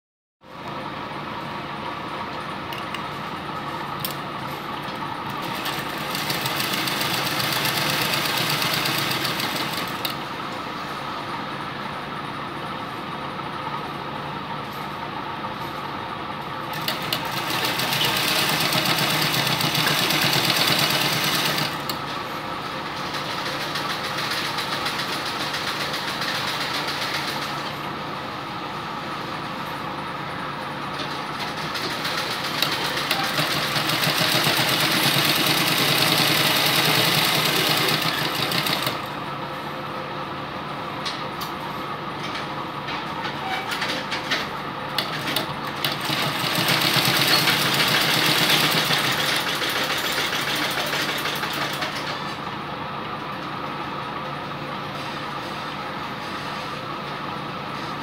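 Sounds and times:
sewing machine stitching: 0:05.3 - 0:10.2, 0:16.7 - 0:22.0, 0:31.2 - 0:39.2, 0:45.0 - 0:52.2.

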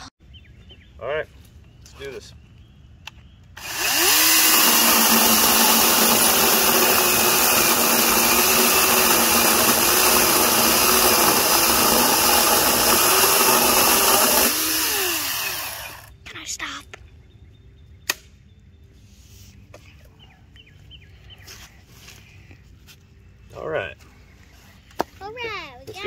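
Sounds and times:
chain rasping through wood: 0:03.6 - 0:16.0
electric chainsaw motor whine: 0:03.6 - 0:16.1.

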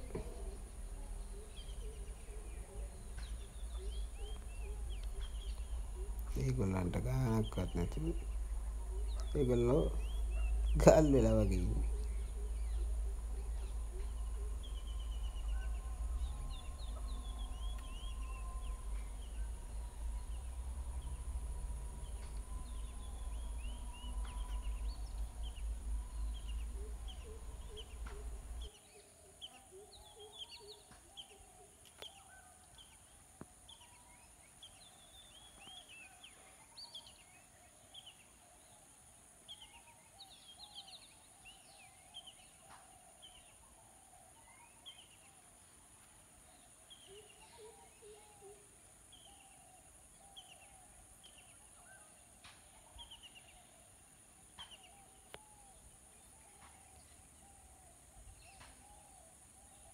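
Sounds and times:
low rumble: 0:00.0 - 0:28.7.

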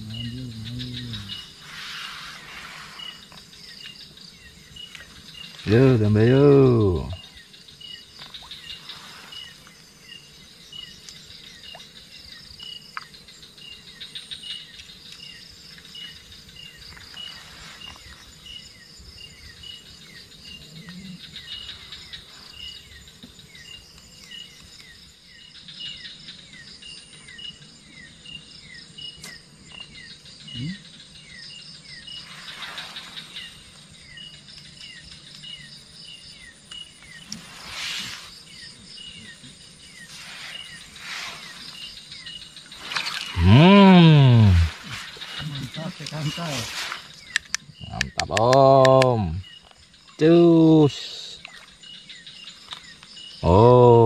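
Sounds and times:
buzzy insect trills: 0:00.0 - 0:54.0
insect chirps: 0:00.0 - 0:54.0
short falling insect notes: 0:40.0 - 0:47.6.

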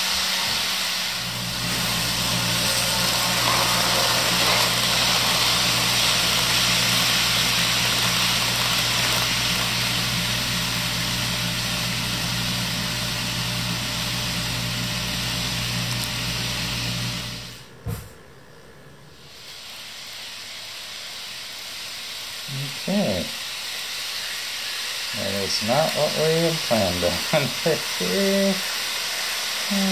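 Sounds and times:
model train motor whirring: 0:00.0 - 0:12.5, 0:19.3 - 0:29.9.

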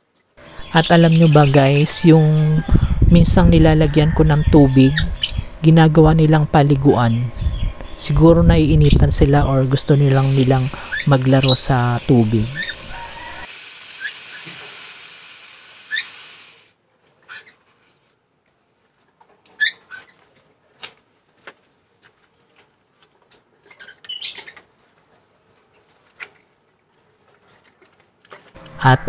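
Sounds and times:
parrots chirping and squeaking: 0:00.7 - 0:02.9, 0:04.5 - 0:05.6, 0:09.8 - 0:14.4, 0:15.8 - 0:16.4, 0:17.2 - 0:17.7, 0:19.5 - 0:20.2, 0:23.6 - 0:24.8.

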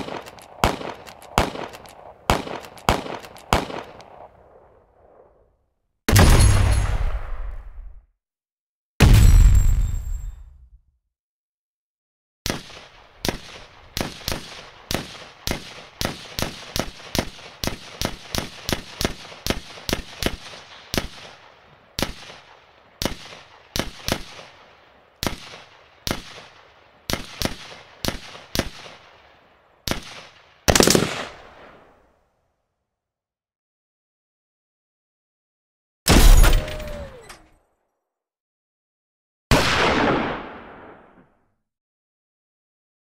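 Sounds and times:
gunshots: 0:00.0 - 0:04.4, 0:06.1 - 0:07.8, 0:12.5 - 0:29.2, 0:29.9 - 0:31.8, 0:36.1 - 0:37.3, 0:39.5 - 0:41.3
loud dense blast: 0:09.0 - 0:09.9.

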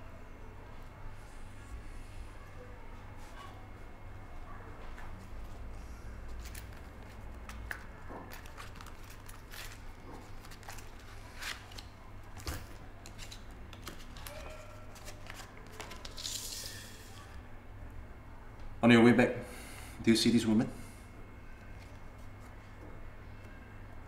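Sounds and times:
wallet clicks and rustles: 0:06.2 - 0:16.9
paper rustling: 0:06.3 - 0:17.1.

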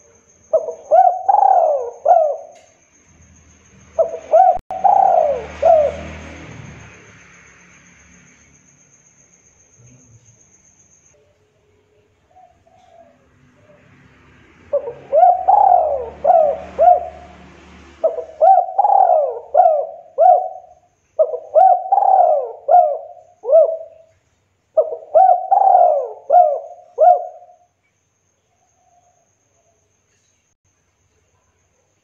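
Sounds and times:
dove cooing: 0:00.0 - 0:02.7, 0:04.0 - 0:06.4, 0:14.6 - 0:17.4, 0:18.0 - 0:24.1, 0:24.8 - 0:27.6.

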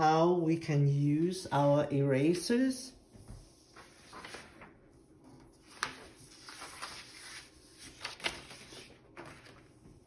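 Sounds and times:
paper rustling: 0:03.2 - 0:10.0.

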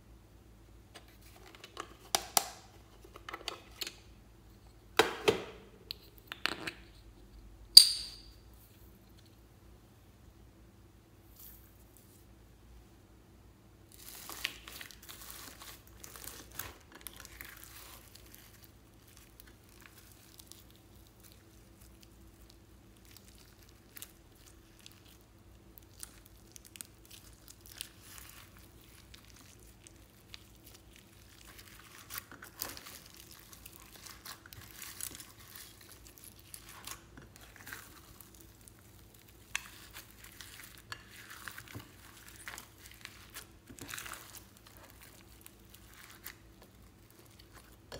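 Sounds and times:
hands squishing slime: 0:13.9 - 0:47.9.

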